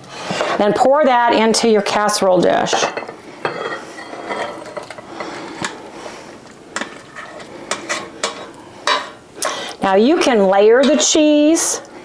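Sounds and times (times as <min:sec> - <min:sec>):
utensil scraping mixing bowl: 0:06.8 - 0:09.0.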